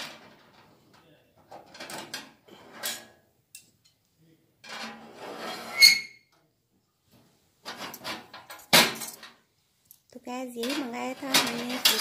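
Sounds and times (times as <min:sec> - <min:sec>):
sheet metal scraping and sliding: 0:01.7 - 0:03.2, 0:04.6 - 0:06.2, 0:10.6 - 0:12.0
short high squeak: 0:05.6 - 0:06.2.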